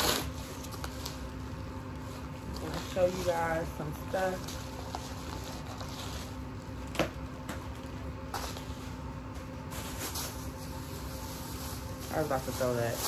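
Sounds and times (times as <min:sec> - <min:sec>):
paper mailer rustling: 0:00.0 - 0:06.5, 0:08.1 - 0:13.0.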